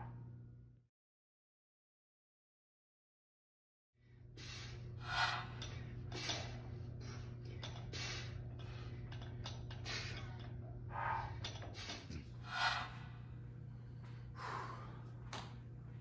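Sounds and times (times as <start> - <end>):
steady low hum: 4.0 - 16.0
man breathing out sharply: 14.3 - 15.1.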